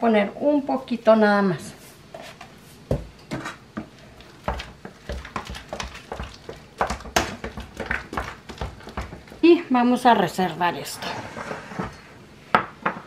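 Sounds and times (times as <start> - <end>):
potato masher knocking on pot: 4.4 - 9.4.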